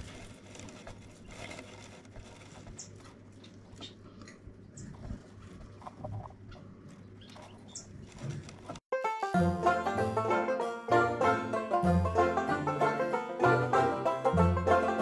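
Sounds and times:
rustling dry grass: 0:00.0 - 0:03.7.

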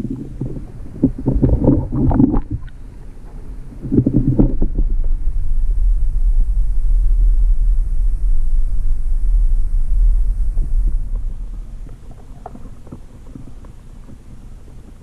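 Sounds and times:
underwater water rumble: 0:00.0 - 0:15.0.

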